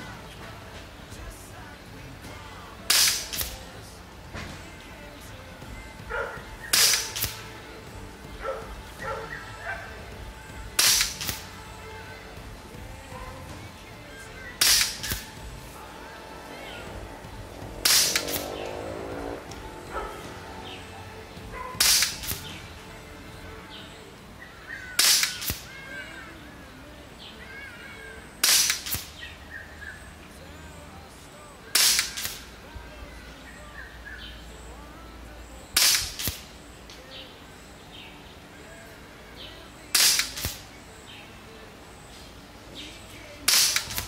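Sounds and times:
air rifle shots: 0:02.9 - 0:03.7, 0:06.5 - 0:07.6, 0:10.7 - 0:11.6, 0:14.6 - 0:15.6, 0:17.8 - 0:19.8, 0:21.7 - 0:22.6, 0:25.0 - 0:25.7, 0:28.4 - 0:29.2, 0:31.7 - 0:32.5, 0:35.8 - 0:36.5, 0:39.9 - 0:40.7, 0:43.5 - 0:44.0.

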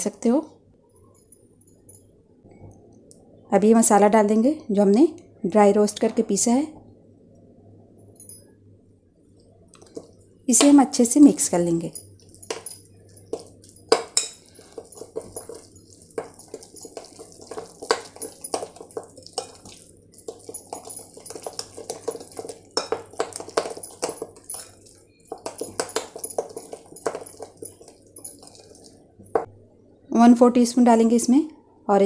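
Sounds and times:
spoon scraping and clinking bowl: 0:11.8 - 0:29.5
soft wet squishing: 0:12.2 - 0:29.4.

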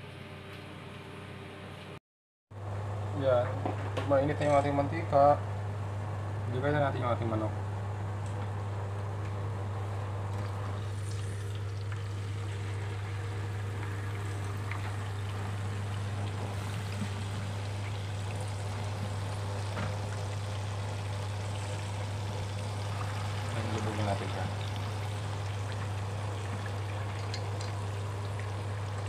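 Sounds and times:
chicken sizzling in hot oil: 0:10.8 - 0:29.0.

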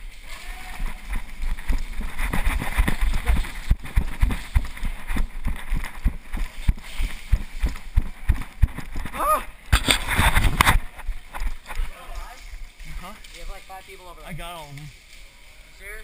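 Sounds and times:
running footsteps on concrete: 0:00.1 - 0:09.4.

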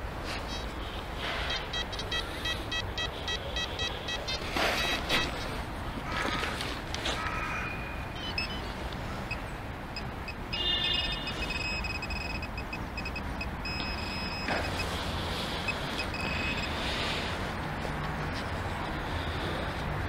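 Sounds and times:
pinpointer beeping: 0:01.4 - 0:05.5, 0:07.9 - 0:08.7, 0:09.3 - 0:14.9, 0:15.6 - 0:16.8.

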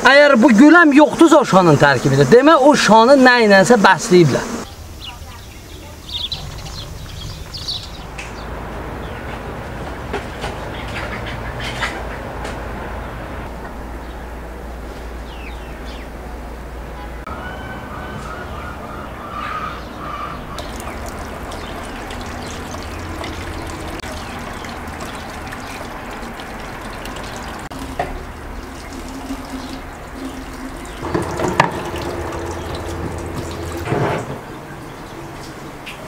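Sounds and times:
tap water running into bowl: 0:20.6 - 0:34.4
bowl knocking and clattering: 0:31.0 - 0:34.4.

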